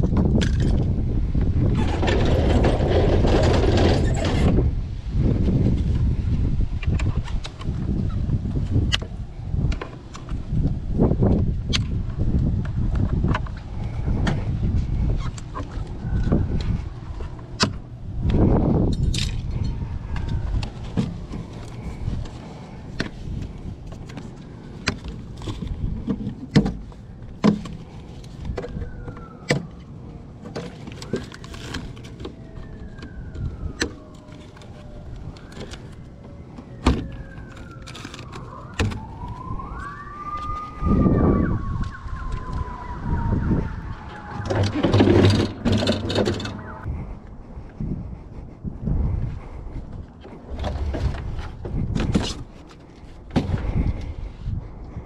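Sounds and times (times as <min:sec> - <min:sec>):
siren wailing: 0:28.4 - 0:30.3, 0:31.0 - 0:46.9.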